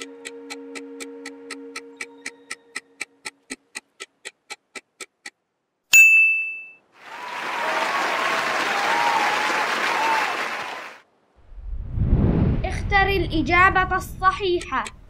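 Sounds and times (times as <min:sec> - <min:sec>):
countdown timer ticking: 0:00.0 - 0:05.4, 0:14.2 - 0:15.0
bright ding: 0:05.9 - 0:06.8
applause: 0:07.0 - 0:11.0.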